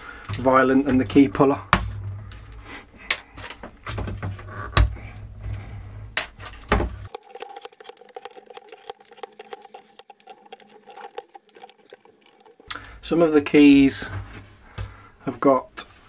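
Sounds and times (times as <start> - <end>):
fast run of small clicks: 7.1 - 12.8.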